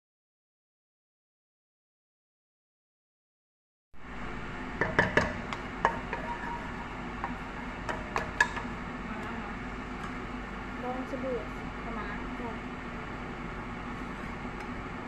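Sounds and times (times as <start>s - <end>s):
spoon knocking on pot: 4.8s - 6.6s, 7.2s - 8.7s
wooden spoon scraping pot: 4.8s - 8.6s.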